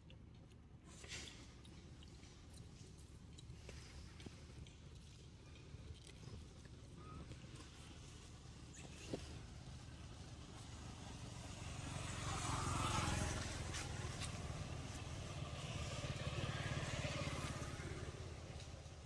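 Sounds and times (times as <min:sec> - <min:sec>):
vehicle engine running: 0:01.8 - 0:19.0.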